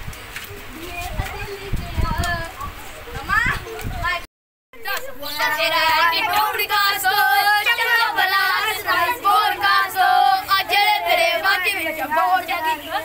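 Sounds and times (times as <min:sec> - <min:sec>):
boys singing together: 0:04.9 - 0:13.0.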